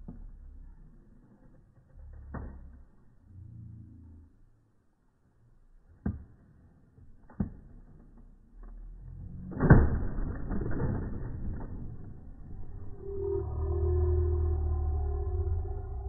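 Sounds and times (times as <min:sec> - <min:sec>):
noisy rumble: 0:09.0 - 0:16.0
trampoline knocks: 0:09.3 - 0:12.6.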